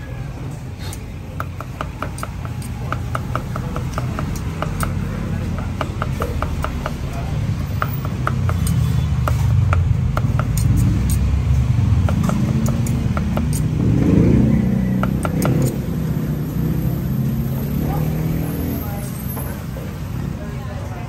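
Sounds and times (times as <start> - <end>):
road traffic rumble: 0.0 - 21.0
cleaver chopping on wooden block: 1.3 - 11.3, 12.0 - 13.8, 14.8 - 15.8
vehicle passing: 3.6 - 21.0.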